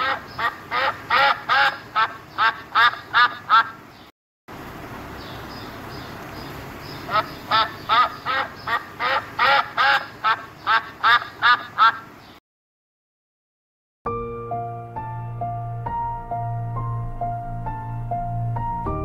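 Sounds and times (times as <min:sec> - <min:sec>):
duck quacking: 0:00.0 - 0:03.8, 0:07.0 - 0:12.1
background hiss: 0:00.0 - 0:12.4.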